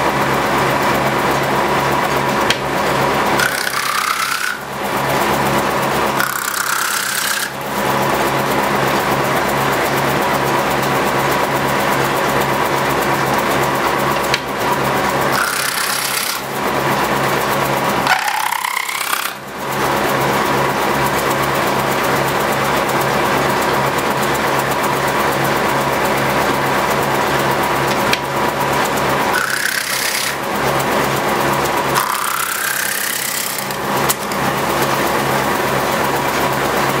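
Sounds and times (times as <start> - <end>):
machine and belt drive humming: 0.0 - 37.0
disc cutter rasping wood: 2.4 - 8.2, 13.2 - 19.5, 27.8 - 35.7.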